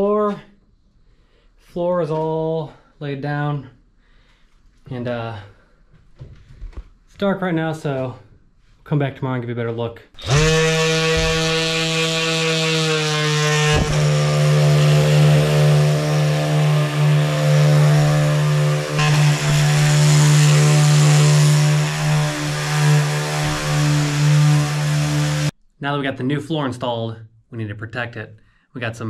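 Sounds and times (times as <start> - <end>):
orbital sander on wood: 10.2 - 25.6.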